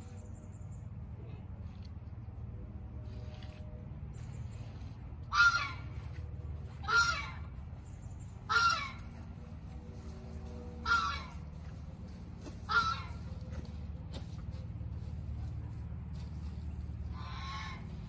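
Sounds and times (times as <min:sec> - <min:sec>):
steady low rumble: 0:00.0 - 0:18.0
bird calling: 0:06.8 - 0:09.2.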